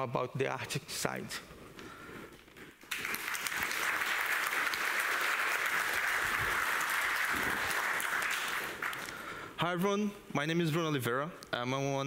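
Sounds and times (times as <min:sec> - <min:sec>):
audience applauding: 0:02.8 - 0:09.4.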